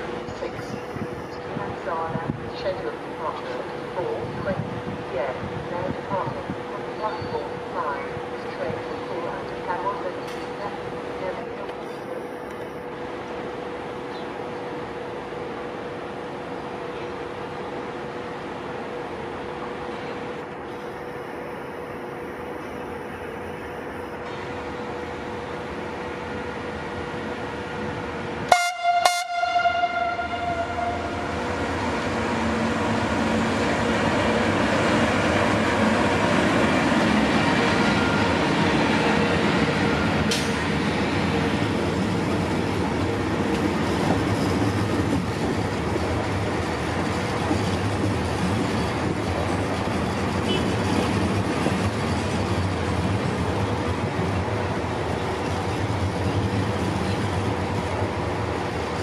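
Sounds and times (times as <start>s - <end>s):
train wheels rumbling on rails: 24.1s - 59.0s
train horn blasts: 28.5s - 31.4s, 50.4s - 50.8s.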